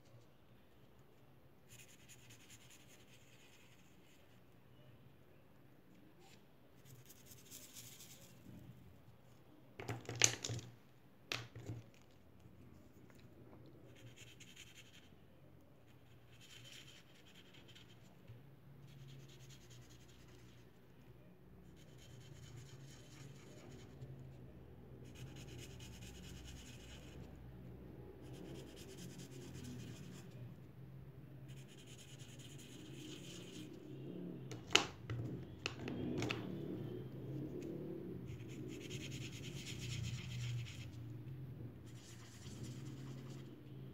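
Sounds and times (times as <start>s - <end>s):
marker scribbling on paper: 1.7s - 4.3s, 6.2s - 8.4s, 16.0s - 18.1s, 21.7s - 24.0s, 25.0s - 27.2s, 31.5s - 33.8s, 41.9s - 43.5s.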